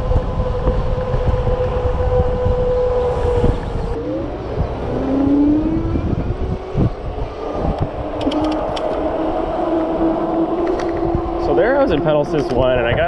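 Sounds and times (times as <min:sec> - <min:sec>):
electric bike motor whining: 0:00.0 - 0:13.0
wind rush on microphone: 0:00.0 - 0:13.0.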